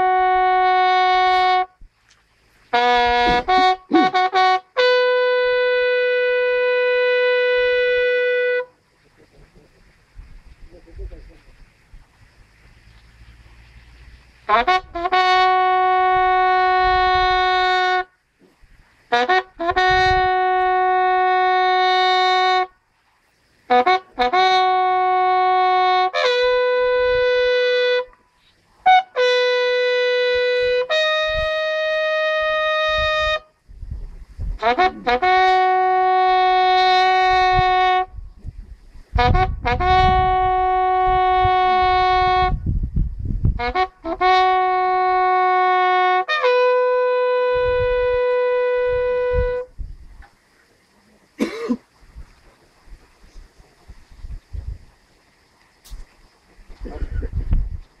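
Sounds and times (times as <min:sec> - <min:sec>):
bugle playing funeral call: 0:00.0 - 0:01.8, 0:02.7 - 0:08.8, 0:14.4 - 0:18.1, 0:19.1 - 0:22.7, 0:23.7 - 0:28.2, 0:28.8 - 0:33.5, 0:34.6 - 0:38.1, 0:39.2 - 0:42.6, 0:43.6 - 0:49.7.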